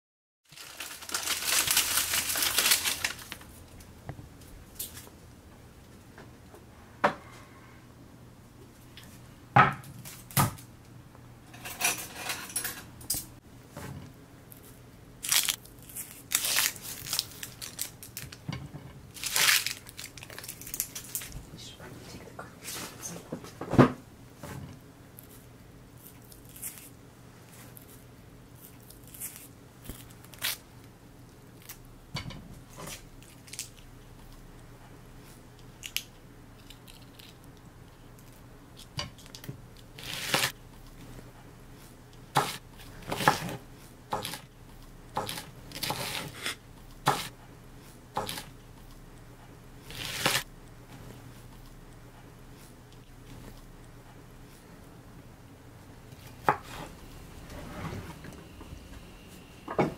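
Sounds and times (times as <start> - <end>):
knife cutting onion: 40.0 - 40.6, 42.4 - 44.5, 45.2 - 47.3, 48.2 - 48.5, 49.9 - 50.4.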